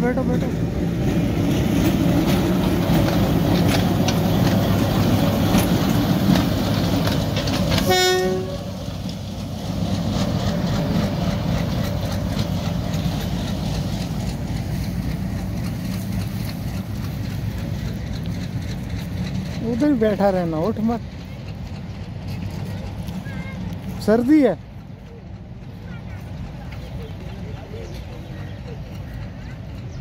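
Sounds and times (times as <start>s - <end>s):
diesel locomotive engine rumbling: 0.0s - 30.0s
wheels clicking over rail joints: 0.0s - 30.0s
locomotive horn blast: 7.8s - 8.8s.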